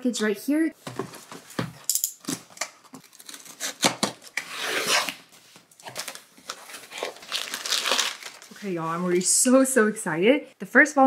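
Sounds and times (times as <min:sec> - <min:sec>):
blade slitting packing tape: 0:03.0 - 0:05.2
cardboard flaps tearing apart: 0:05.8 - 0:08.5.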